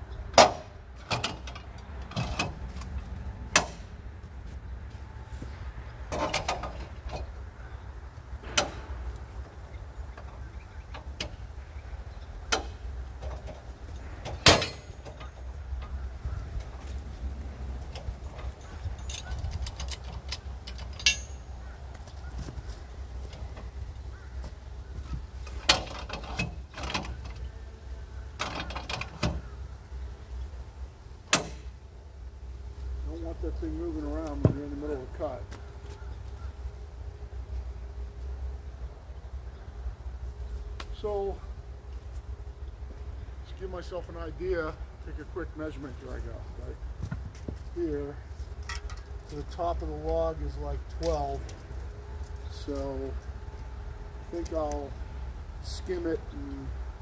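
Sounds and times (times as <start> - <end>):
steady low rumble: 0.0 - 28.4
low steady rumble: 0.0 - 57.0
metal clanks from sawmill: 0.4 - 2.6, 3.5 - 3.9, 8.4 - 9.1, 14.2 - 15.4, 18.2 - 21.5, 31.3 - 31.7
metal knocks and clanks: 8.4 - 9.2, 12.5 - 16.8.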